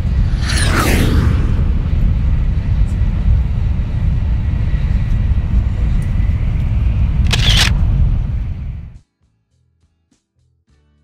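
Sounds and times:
train rumble inside carriage: 0:02.0 - 0:09.0.

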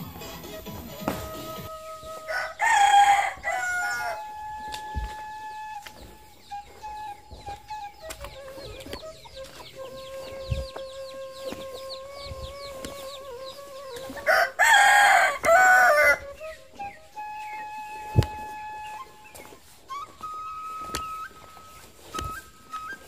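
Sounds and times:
rooster crowing: 0:01.1 - 0:05.2, 0:12.6 - 0:16.2.

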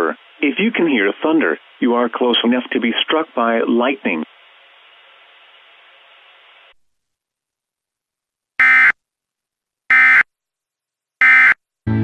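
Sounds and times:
faint radio hiss: 0:00.0 - 0:06.9.

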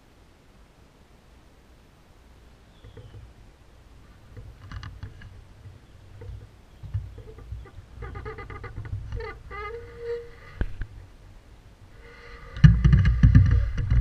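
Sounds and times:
low rumble of handling noise: 0:02.4 - 0:14.0
pulsed animal calls: 0:07.1 - 0:10.6.

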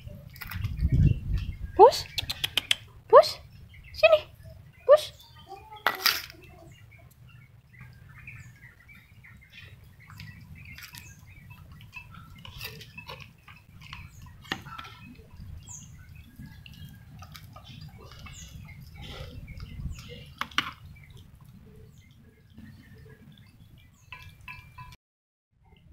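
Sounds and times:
cats chewing and lapping: 0:06.3 - 0:24.5.

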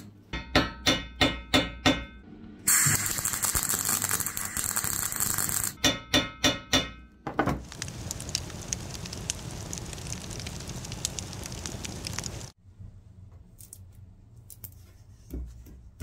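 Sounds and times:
hammer blows ringing on metal: 0:00.4 - 0:02.2, 0:05.8 - 0:07.1
welding arc crackling: 0:02.7 - 0:05.8, 0:07.6 - 0:12.6
wood fire crackling and popping: 0:03.0 - 0:05.8, 0:07.6 - 0:12.6.

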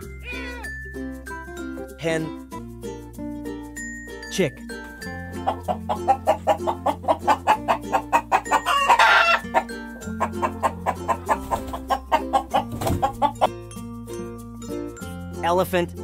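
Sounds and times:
soft background music: 0:00.0 - 0:16.0
chickens clucking: 0:05.1 - 0:13.6.

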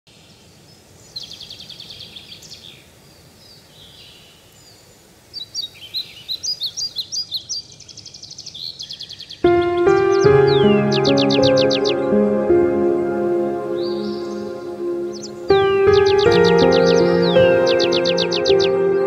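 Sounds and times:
faint steady hiss: 0:00.1 - 0:18.9
songbirds singing: 0:00.1 - 0:19.0.

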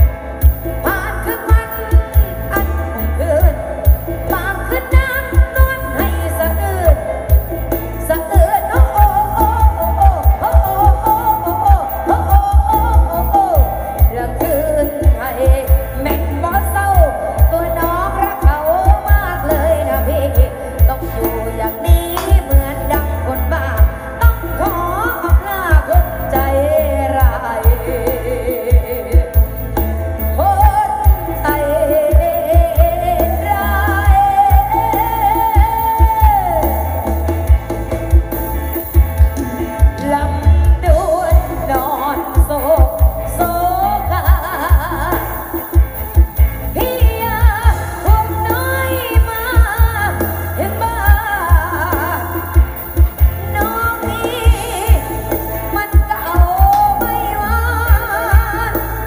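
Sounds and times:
heavy bass notes: 0:00.0 - 0:59.0
song with singing voice: 0:00.0 - 0:59.0.

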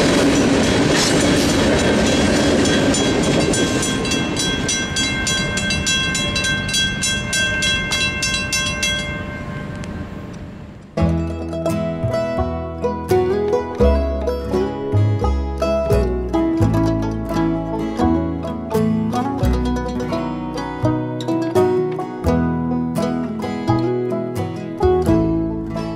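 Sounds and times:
railroad crossing bell ringing: 0:00.0 - 0:10.7
freight train rumble and clatter: 0:00.0 - 0:23.9
plucked-string music: 0:10.9 - 0:25.9.

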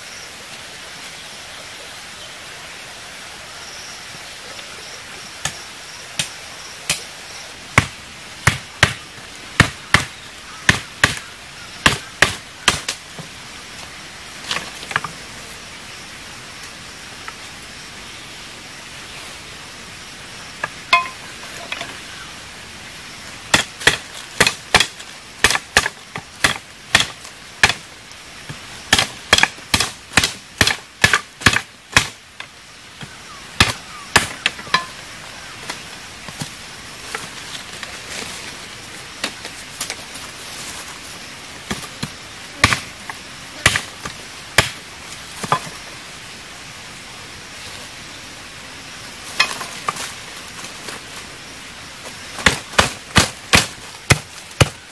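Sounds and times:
background hiss: 0:00.0 - 0:54.9
machete chopping wooden poles: 0:07.8 - 0:13.3, 0:20.6 - 0:21.9, 0:23.5 - 0:27.9, 0:28.5 - 0:32.2, 0:33.0 - 0:35.0, 0:41.7 - 0:42.9, 0:43.6 - 0:44.8, 0:49.4 - 0:50.0, 0:52.4 - 0:54.8.

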